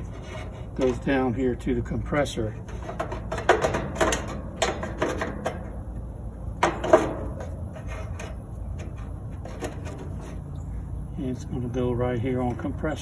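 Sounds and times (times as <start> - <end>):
connectors clicking and scraping: 0.0 - 1.5, 2.2 - 10.7.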